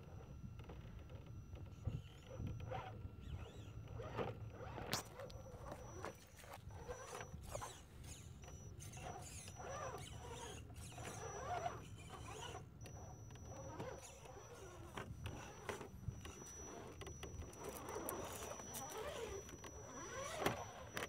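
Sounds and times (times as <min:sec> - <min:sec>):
electric motor whining: 0:00.0 - 0:21.0
scattered clicks: 0:12.8 - 0:21.0.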